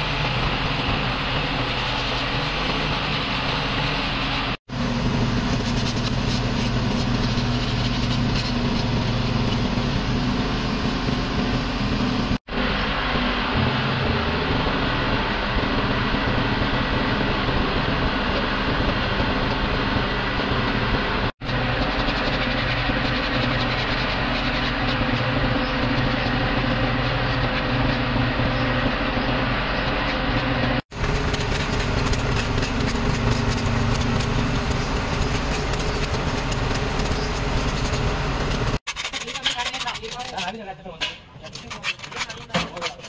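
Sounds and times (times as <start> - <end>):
machine droning steadily: 0.0 - 38.8.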